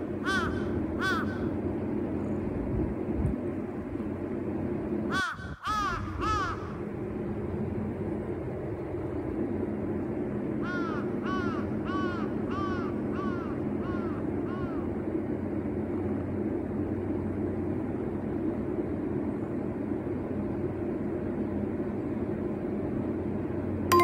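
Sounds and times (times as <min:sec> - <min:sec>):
steady low hum: 0:00.0 - 0:24.0
crow cawing: 0:00.2 - 0:01.6, 0:05.1 - 0:06.8, 0:10.6 - 0:14.9.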